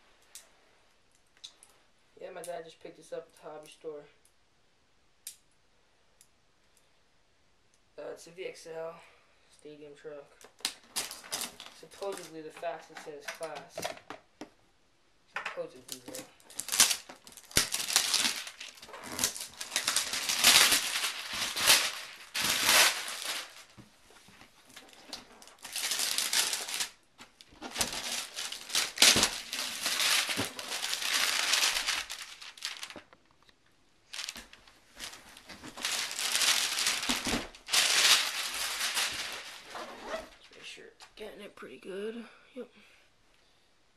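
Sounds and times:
cardboard box crinkling and scraping: 0:15.9 - 0:23.8, 0:24.7 - 0:26.9, 0:27.5 - 0:33.0, 0:34.2 - 0:40.4.

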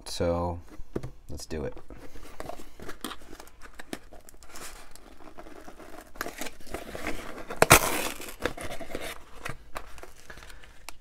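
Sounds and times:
cardboard box being opened: 0:01.8 - 0:10.5.

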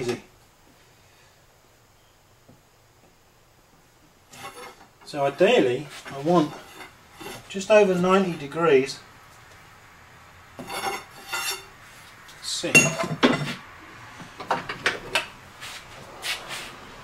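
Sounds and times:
metal clattering and clinking: 0:12.8 - 0:13.6.

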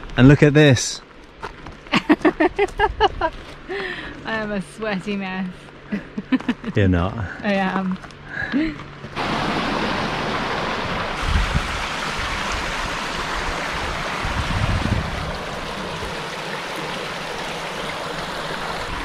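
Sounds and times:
low rumbles: 0:09.2 - 0:16.2
stream running over stones: 0:09.2 - 0:19.0.

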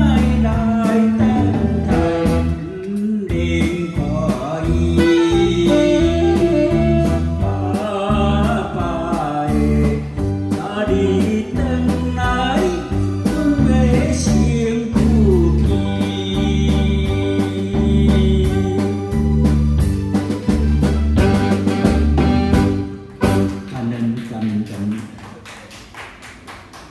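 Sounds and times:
man singing into microphone: 0:00.0 - 0:19.4
steady drum beat: 0:00.0 - 0:23.9
keyboard: 0:03.4 - 0:24.0.

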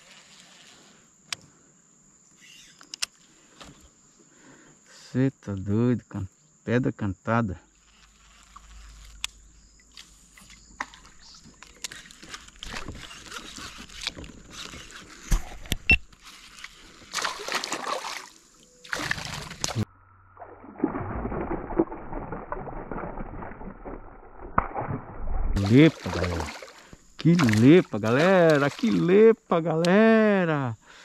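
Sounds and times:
fish splashing in water: 0:16.6 - 0:19.8, 0:20.6 - 0:25.0, 0:25.6 - 0:29.2.

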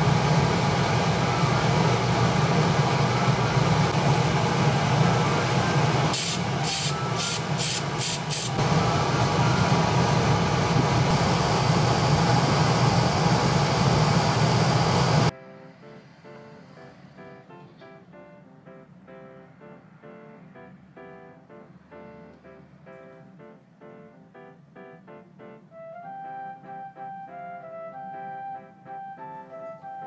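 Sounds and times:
airbrush equipment rushing hum: 0:00.0 - 0:15.3
airbrush hissing spurts: 0:06.1 - 0:08.6
steady spray hiss: 0:06.1 - 0:08.6, 0:11.1 - 0:15.3.

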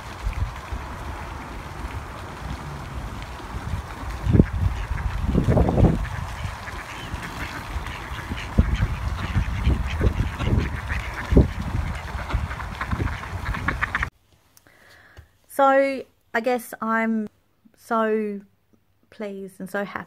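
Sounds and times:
wind rumbling on microphone: 0:00.0 - 0:14.1
ducks quacking: 0:00.9 - 0:14.1.

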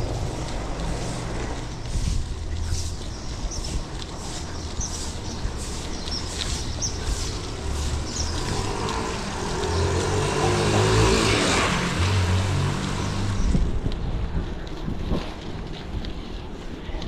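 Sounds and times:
vehicle passing by: 0:00.0 - 0:03.0, 0:05.0 - 0:13.8.

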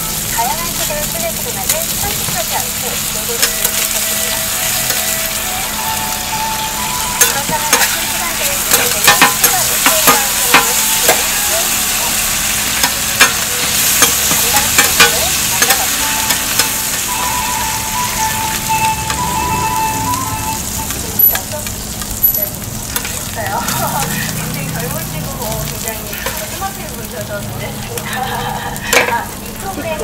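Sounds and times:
food sizzling on a griddle: 0:00.0 - 0:30.0
metal tongs and spatula scraping: 0:01.6 - 0:05.4, 0:07.2 - 0:17.1, 0:22.2 - 0:24.5, 0:25.8 - 0:26.7, 0:28.9 - 0:29.3.

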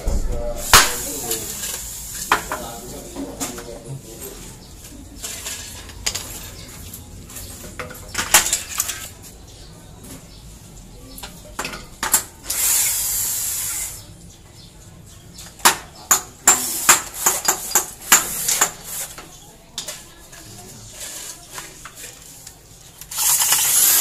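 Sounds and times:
tools and metal parts knocking: 0:15.4 - 0:19.2
electric drill running: 0:23.1 - 0:24.0.

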